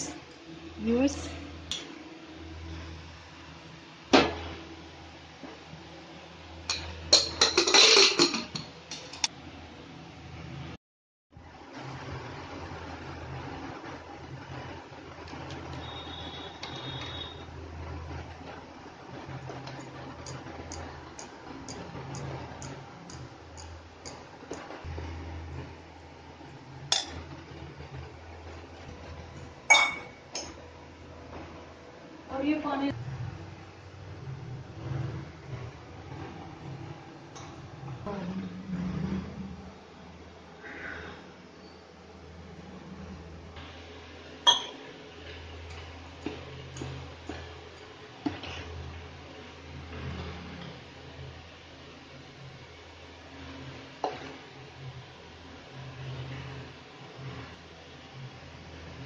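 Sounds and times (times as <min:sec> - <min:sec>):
metal utensils clinking: 0:06.7 - 0:09.3
metal lid clattering and scraping: 0:06.8 - 0:09.2.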